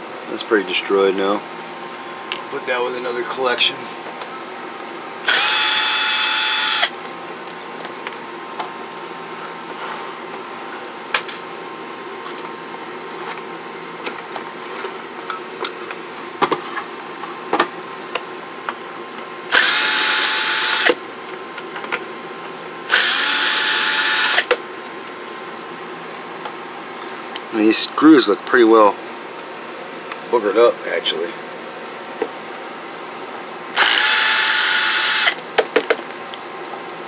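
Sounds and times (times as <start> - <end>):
electric screwdriver whirring: 5.2 - 6.9, 19.5 - 21.0, 22.9 - 24.6, 33.8 - 35.4.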